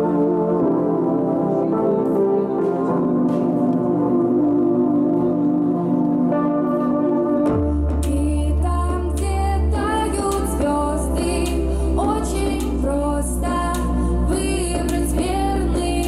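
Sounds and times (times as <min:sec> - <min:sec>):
pop backing music: 0:00.0 - 0:16.0
woman singing: 0:07.9 - 0:16.0.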